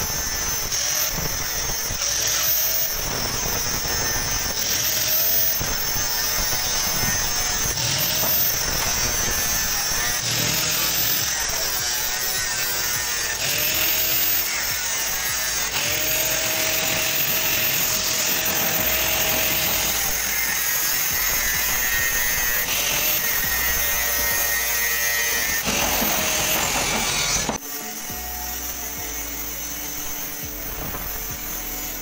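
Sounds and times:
angle grinder cutting sheet metal: 0:00.0 - 0:32.0.

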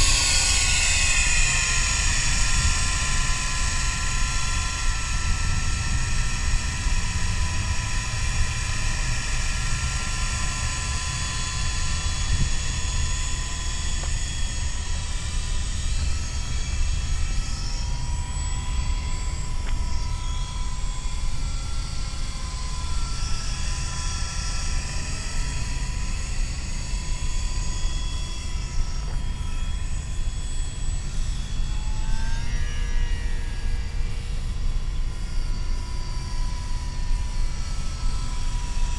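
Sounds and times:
toy helicopter rotor whining: 0:00.0 - 0:38.9.

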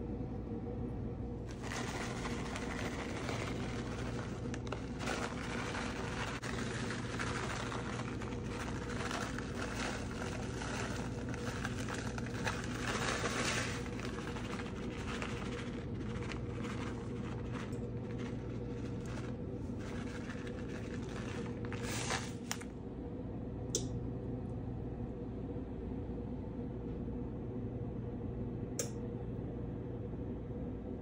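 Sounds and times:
steady hum: 0:00.0 - 0:31.0
plastic bag crinkling: 0:01.5 - 0:22.7.

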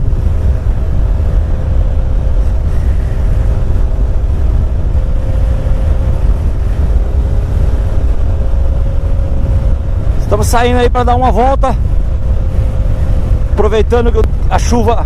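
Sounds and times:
motorcycle engine cruising: 0:00.0 - 0:15.0
wind rumble on microphone: 0:00.0 - 0:15.0.

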